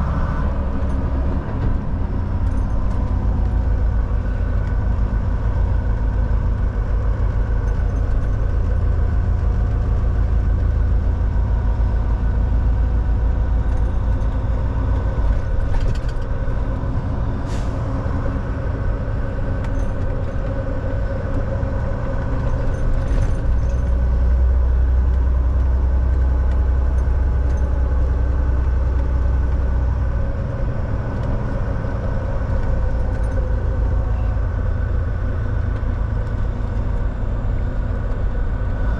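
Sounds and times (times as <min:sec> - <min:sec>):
truck diesel engine drone: 0:00.0 - 0:38.9.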